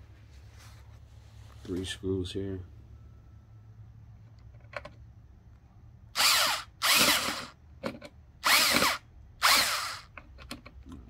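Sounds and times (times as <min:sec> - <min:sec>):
cordless drill whirring: 0:06.2 - 0:07.6, 0:08.4 - 0:10.2.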